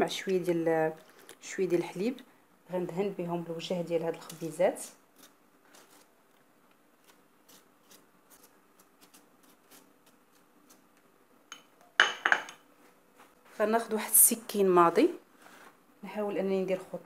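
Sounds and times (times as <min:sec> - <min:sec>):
kitchenware clattering: 0:11.5 - 0:12.7.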